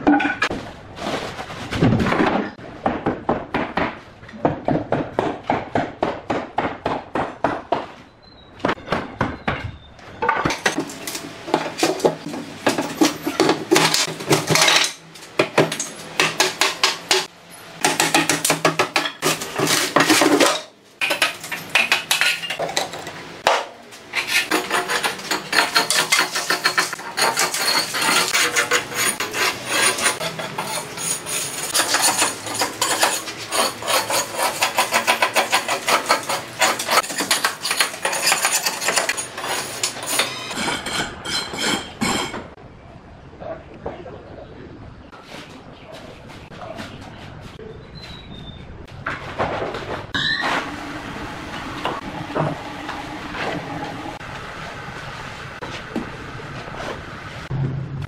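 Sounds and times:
steel bar scraping concrete: 0:24.1 - 0:42.4.

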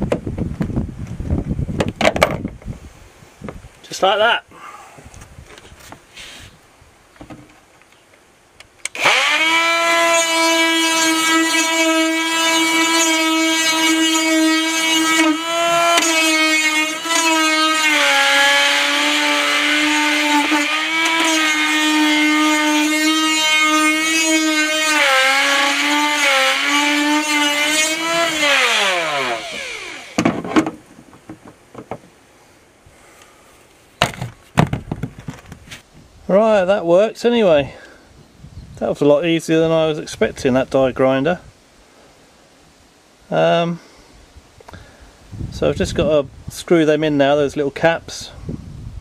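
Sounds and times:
die grinder grinding: 0:08.8 - 0:30.7.

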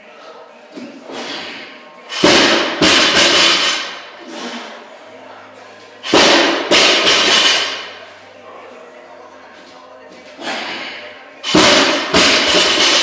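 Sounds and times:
barbells thudding on concrete: 0:11.4 - 0:13.0.

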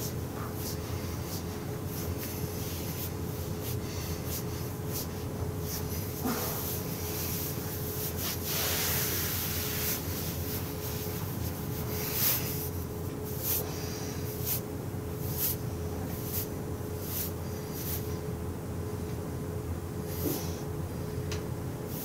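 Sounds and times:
palms swishing on fabric: 0:00.0 - 0:14.6.

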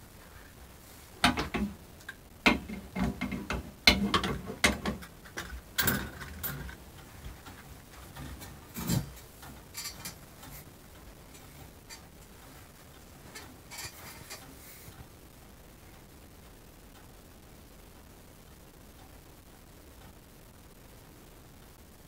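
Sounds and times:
metal clamp clicking and clanking: 0:02.7 - 0:06.8.

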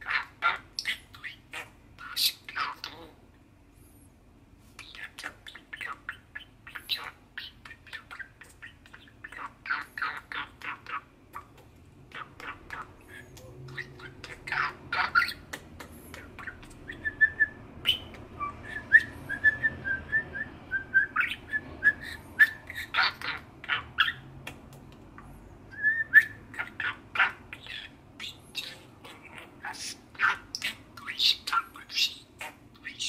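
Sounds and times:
budgerigar chirping notes: 0:12.1 - 0:24.3, 0:25.7 - 0:33.0.

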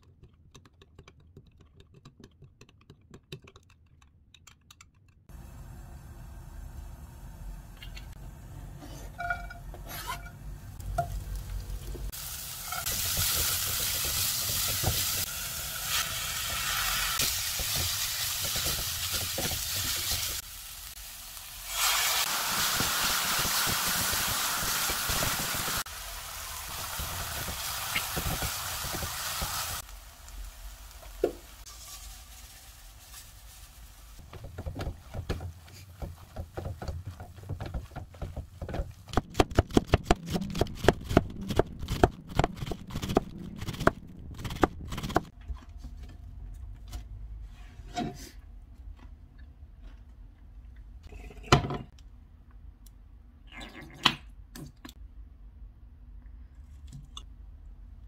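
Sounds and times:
food sizzling in frying pan: 0:11.1 - 0:34.2.

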